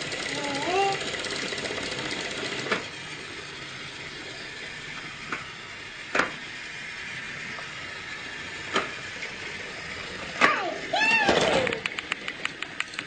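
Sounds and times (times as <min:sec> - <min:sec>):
toy train whirring: 0:00.0 - 0:13.0
sharp clicks: 0:11.6 - 0:13.0.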